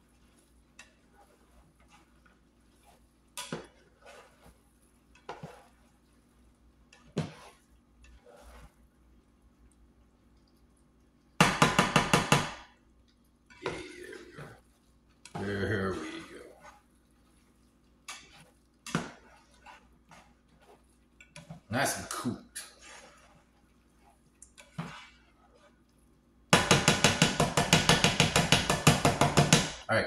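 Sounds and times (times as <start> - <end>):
spatula scraping a pan: 0.0 - 9.3, 13.4 - 29.8
spatula clacking against pan: 2.8 - 4.5, 11.4 - 12.7, 18.0 - 20.2, 26.5 - 29.8.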